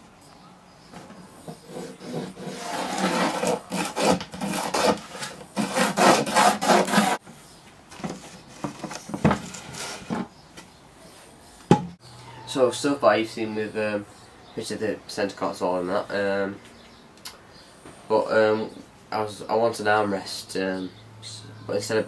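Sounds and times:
rasp scraping plywood: 0:01.4 - 0:07.2, 0:08.1 - 0:10.4.

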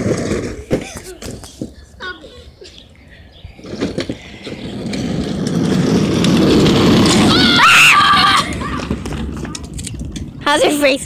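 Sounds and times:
plastic wheels rumbling on asphalt: 0:00.0 - 0:11.0
child squealing: 0:07.3 - 0:08.9.

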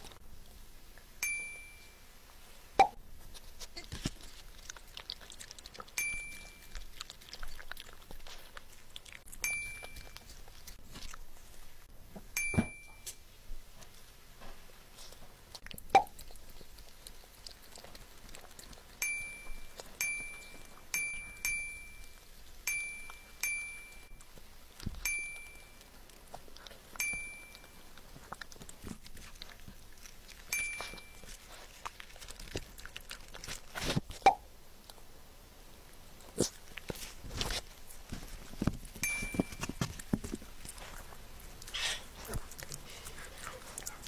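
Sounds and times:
dog licking: 0:03.8 - 0:11.6, 0:15.0 - 0:21.0, 0:25.8 - 0:34.2, 0:39.7 - 0:44.0
glass cup clinking: 0:39.0 - 0:39.6.

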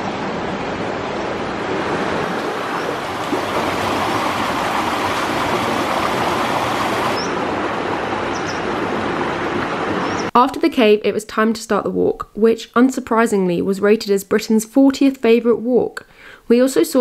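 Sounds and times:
water rushing over rocks: 0:00.5 - 0:08.2.

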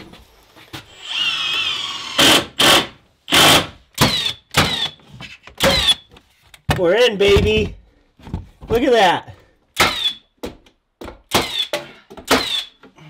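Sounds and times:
power drill driving screws: 0:00.9 - 0:05.0, 0:09.8 - 0:10.2, 0:11.3 - 0:11.7, 0:12.3 - 0:12.8.

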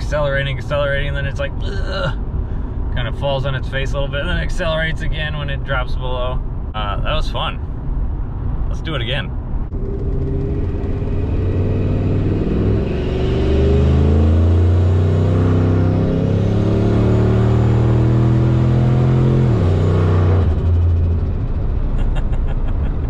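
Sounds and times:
truck engine accelerating hard: 0:09.7 - 0:23.0.

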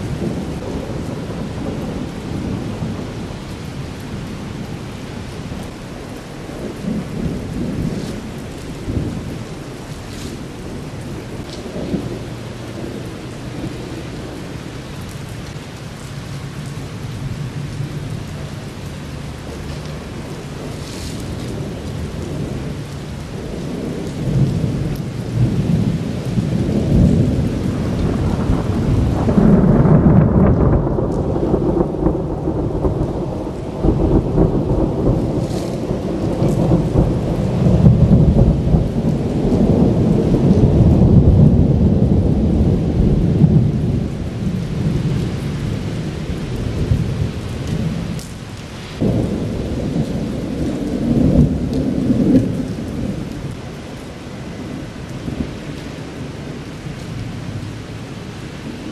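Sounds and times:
steady rain: 0:00.0 - 0:58.9
thunder rumbling: 0:00.0 - 0:58.9
thunder clap: 0:19.5 - 0:53.7.

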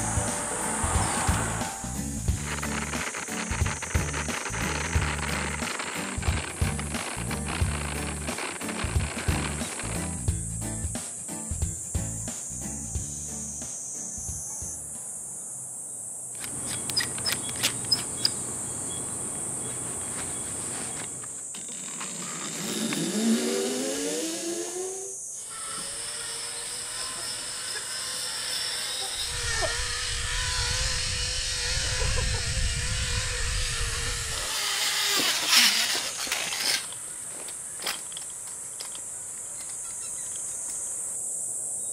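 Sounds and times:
zipline pulley whining on cable: 0:00.0 - 0:10.3, 0:16.4 - 0:40.8
insects buzzing: 0:00.0 - 0:41.9
pulley clattering: 0:02.3 - 0:10.1, 0:34.5 - 0:40.4
sharp clicks: 0:02.4 - 0:10.1.

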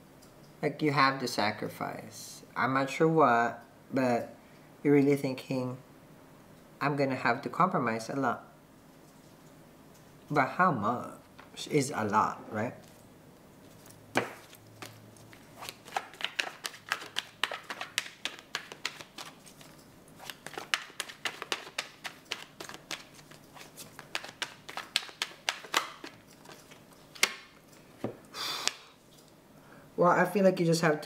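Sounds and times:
cards being shuffled: 0:13.7 - 0:28.8
card snap: 0:14.2 - 0:15.0, 0:15.6 - 0:19.4, 0:24.0 - 0:26.2.

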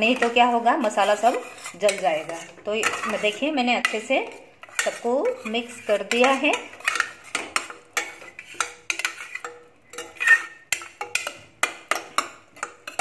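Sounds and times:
spoon scraping a metal pot: 0:00.0 - 0:13.0.

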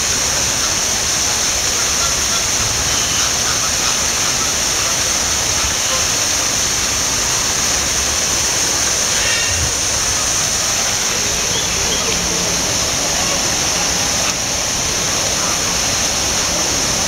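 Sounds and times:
high hiss: 0:00.0 - 0:17.0
steady rushing noise: 0:03.5 - 0:17.0.

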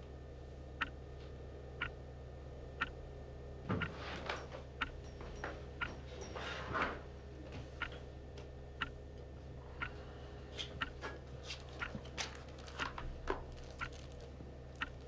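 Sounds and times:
low steady hum: 0:00.0 - 0:15.0
clock ticking: 0:04.8 - 0:05.0, 0:14.8 - 0:15.0.

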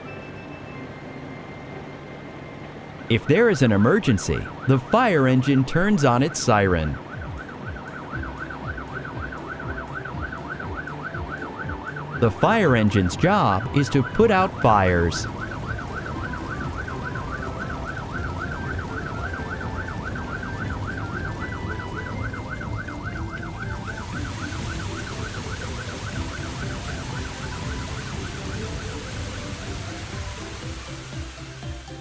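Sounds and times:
cartoon fire engine siren: 0:00.0 - 0:32.0
hose spraying water: 0:23.4 - 0:32.0.

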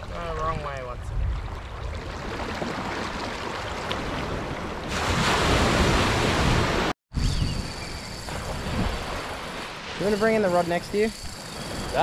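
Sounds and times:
wind buffeting microphone: 0:00.0 - 0:09.6
surf washing onto beach: 0:03.8 - 0:06.9.

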